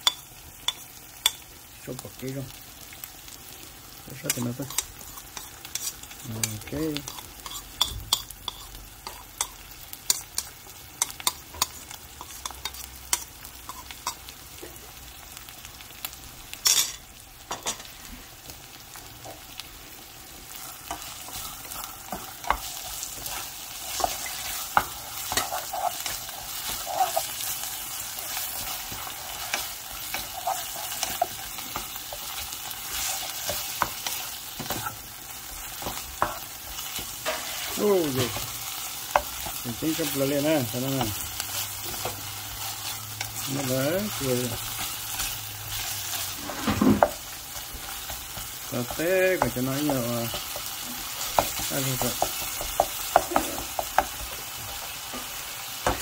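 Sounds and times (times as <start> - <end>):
food sizzling in a pan: 0.0 - 56.0.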